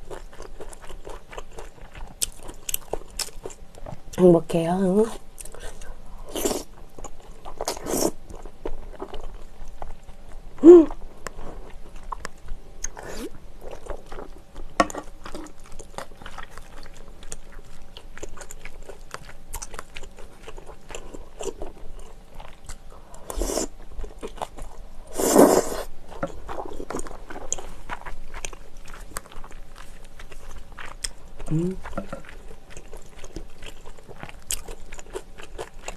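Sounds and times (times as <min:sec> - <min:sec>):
chewing with wet mouth clicks: 0:00.0 - 0:04.0, 0:13.7 - 0:22.9, 0:26.1 - 0:35.9
person humming: 0:10.6 - 0:11.0, 0:31.5 - 0:31.9.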